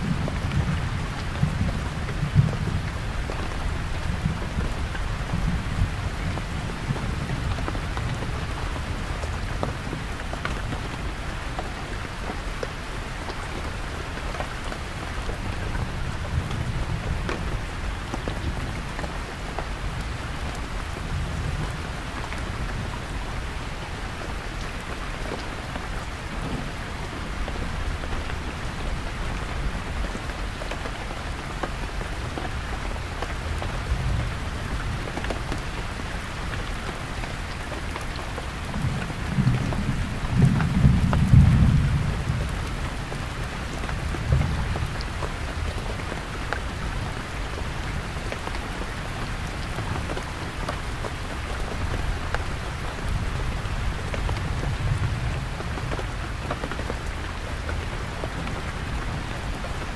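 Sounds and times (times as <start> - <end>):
heavy rain on tent: 0.0 - 59.9
raindrop ticks: 27.5 - 59.8.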